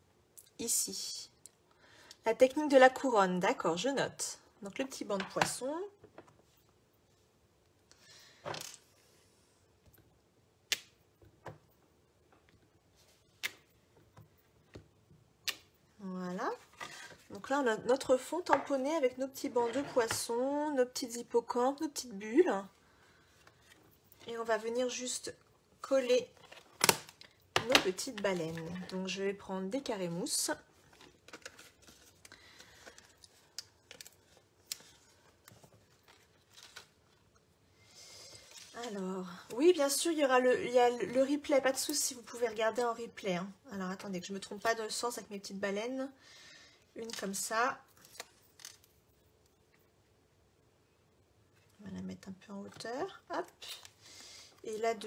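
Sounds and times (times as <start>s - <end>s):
paper rustling: 30.7s - 37.3s.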